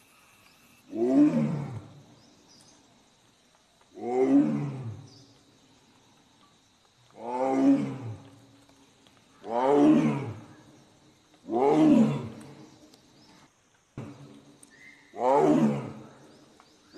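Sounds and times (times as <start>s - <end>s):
tiger roaring: 0.9s - 1.9s, 4.0s - 5.0s, 7.2s - 8.2s, 9.4s - 10.5s, 11.5s - 12.4s, 15.2s - 16.1s.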